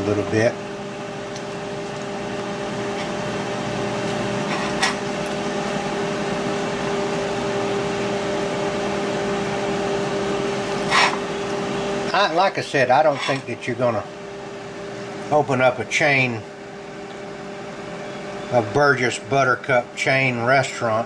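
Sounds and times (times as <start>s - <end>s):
kitchen appliance humming: 0.0s - 21.0s
short scrape: 10.9s - 11.2s.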